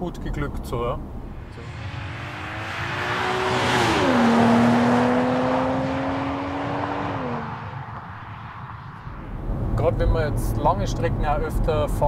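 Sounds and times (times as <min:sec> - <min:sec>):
car engine passing at speed: 0:01.1 - 0:10.4.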